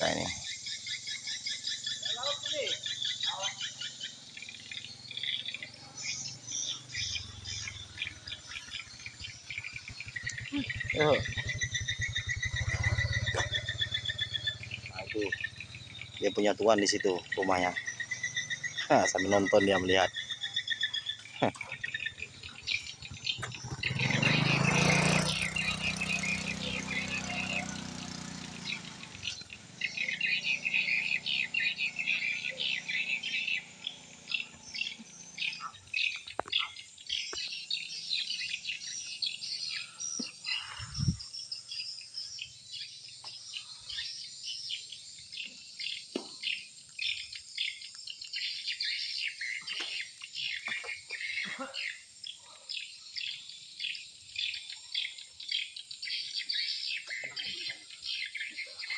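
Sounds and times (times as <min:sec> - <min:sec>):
swiftlets chirping: 0:06.7 - 0:41.3.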